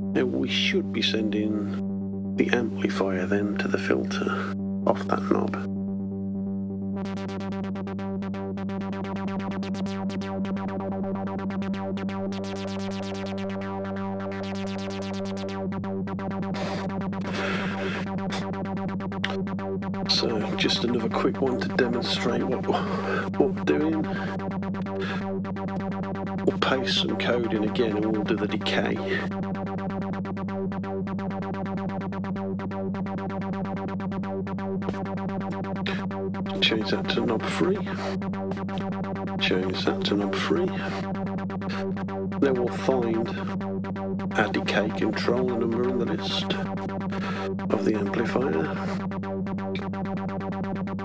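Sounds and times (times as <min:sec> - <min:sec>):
low synthesizer tone: 0:00.0 - 0:51.0
synthesizer pulsing notes: 0:00.0 - 0:51.0.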